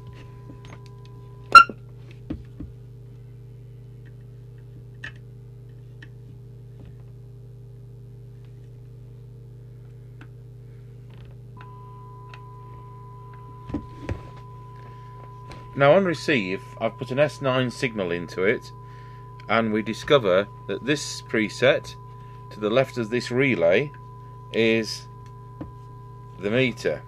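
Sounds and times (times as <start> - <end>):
electrical hum with faint whine: 0.0 - 27.0
high test tone: 1.6 - 1.8.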